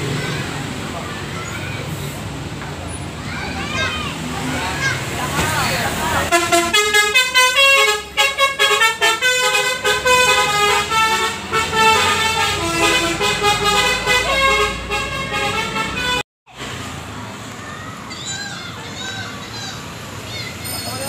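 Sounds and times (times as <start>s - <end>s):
musical bus air horn: 6.3s - 16.2s.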